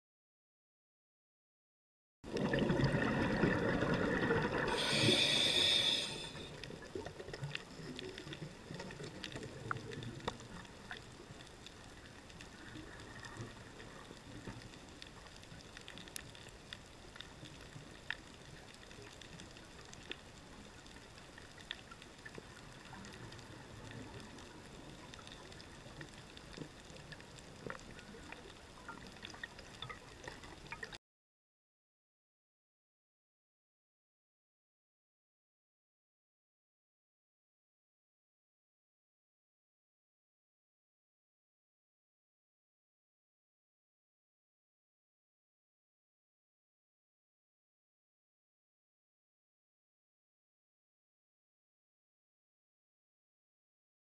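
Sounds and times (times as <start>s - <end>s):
rush of bubbles underwater: 2.3s - 11.6s
faint reef clicks and crackles: 2.3s - 31.0s
underwater hiss: 3.3s - 7.1s.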